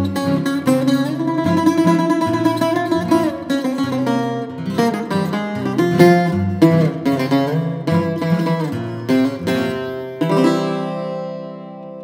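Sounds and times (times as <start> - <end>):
bouzouki playing plucked notes: 0.0 - 12.0.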